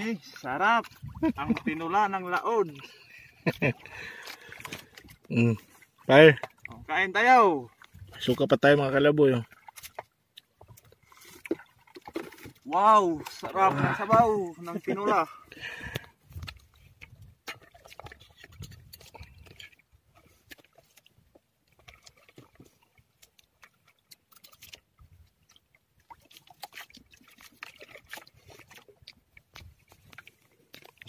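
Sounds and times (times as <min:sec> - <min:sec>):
chewing and slurping: 0:02.7 - 0:06.8, 0:15.6 - 0:31.0.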